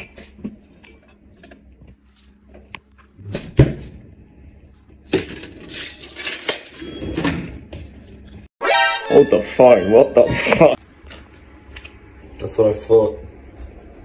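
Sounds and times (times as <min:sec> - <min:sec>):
kitchenware clinking and clattering: 0:05.0 - 0:07.9.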